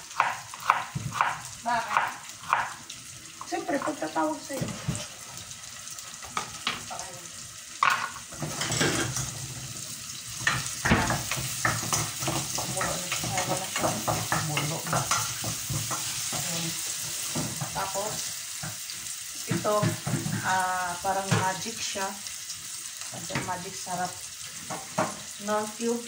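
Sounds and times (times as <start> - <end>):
aromatics sizzling in oil: 0.0 - 26.0
wooden spatula scraping pan: 3.4 - 5.2.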